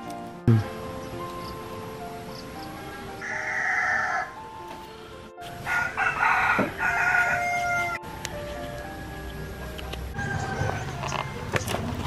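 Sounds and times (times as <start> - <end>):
background music: 0.0 - 12.0
rooster crowing: 2.8 - 4.4, 5.6 - 8.0, 10.2 - 11.0.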